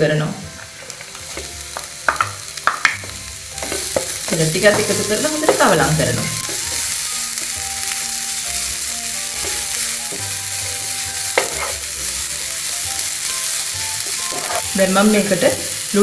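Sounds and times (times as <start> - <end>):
vegetables sizzling in oil: 0.0 - 16.0
spatula scraping pan: 11.4 - 11.8, 14.2 - 14.8.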